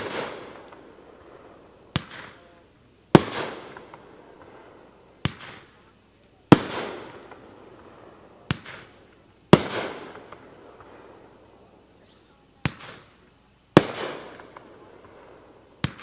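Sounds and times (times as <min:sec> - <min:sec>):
firework launch bang: 0:00.0 - 0:01.0, 0:03.2 - 0:05.8, 0:08.4 - 0:11.0
firework burst bang: 0:00.0 - 0:05.8, 0:06.5 - 0:11.2, 0:12.6 - 0:16.0.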